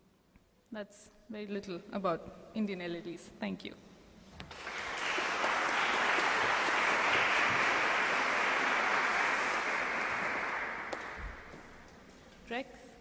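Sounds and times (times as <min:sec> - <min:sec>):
audience applauding: 0:04.5 - 0:11.8.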